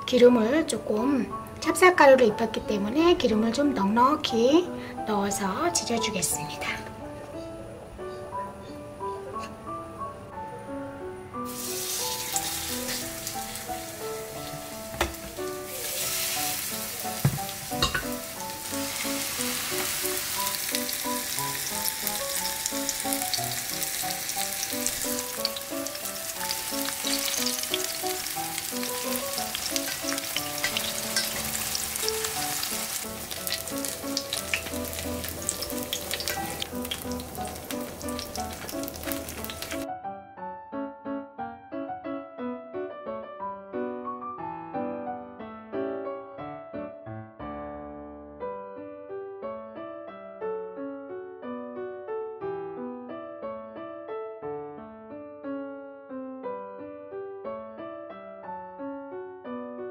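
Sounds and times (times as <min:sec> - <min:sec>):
background music: 0:00.0 - 0:47.0
food sizzling in oil: 0:11.5 - 0:39.9
sharp knocks in pan: 0:14.9 - 0:15.4, 0:17.2 - 0:18.2.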